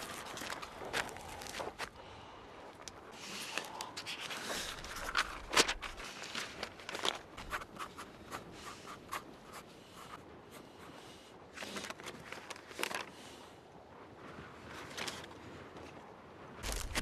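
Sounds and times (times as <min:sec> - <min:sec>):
pencil scribbling on paper: 0:07.4 - 0:10.9.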